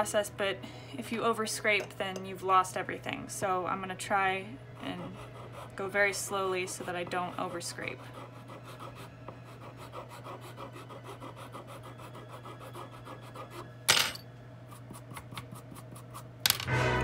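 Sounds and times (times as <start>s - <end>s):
file scraping reed: 4.8s - 5.9s.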